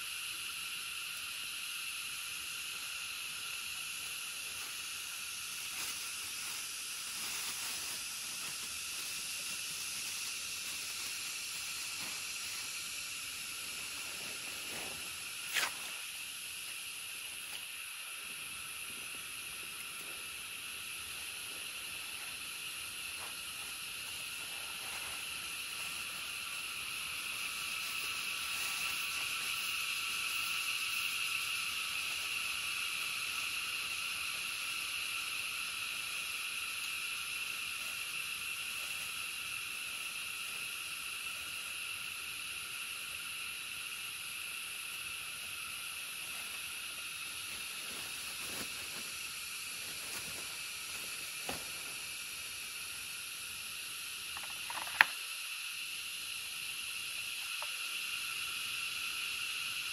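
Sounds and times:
insects hissing chorus: 0.0s - 59.9s.

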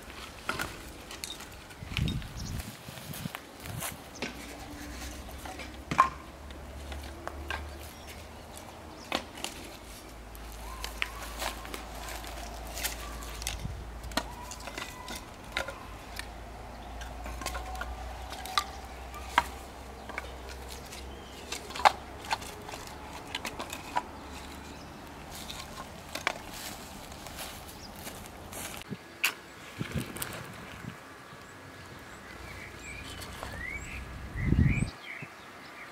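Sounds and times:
firewood knocking against metal: 5.3s - 6.6s.

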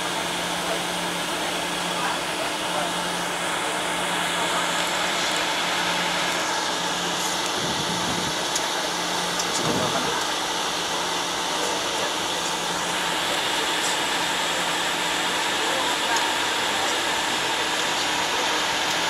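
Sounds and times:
low rumbles: 0.0s - 13.3s
cockpit air hum: 0.0s - 19.0s
jet engines idling: 0.0s - 19.0s.

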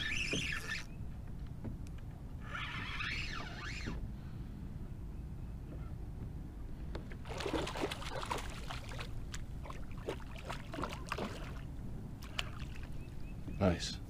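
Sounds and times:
fish splashing in water: 7.2s - 13.1s.

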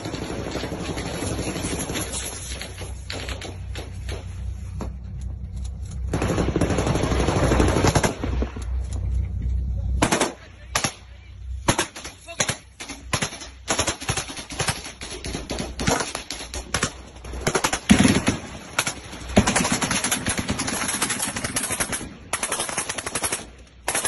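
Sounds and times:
low rumble: 0.0s - 22.4s
machine-gun fire: 6.1s - 8.6s, 10.0s - 11.0s, 11.6s - 24.0s.

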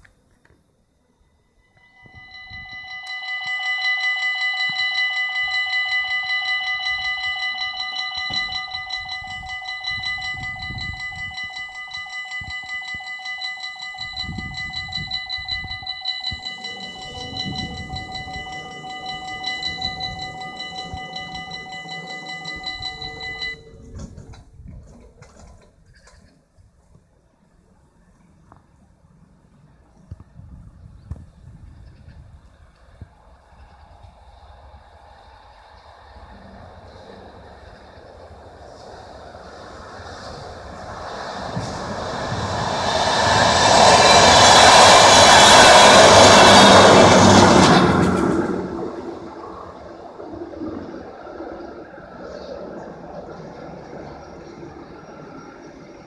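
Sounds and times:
level crossing electronic bell: 1.8s - 23.8s.

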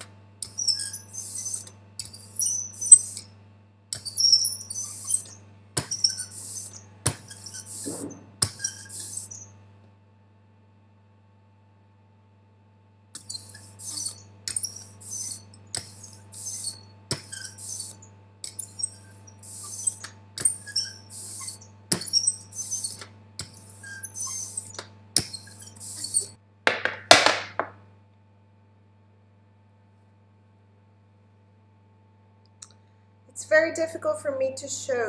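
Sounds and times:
roller hissing strokes: 7.7s - 8.4s.

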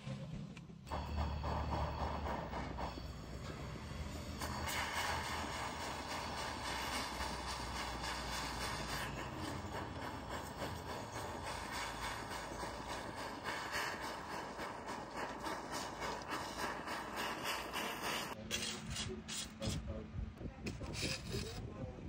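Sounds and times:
gas torch flame hissing: 0.9s - 19.8s.

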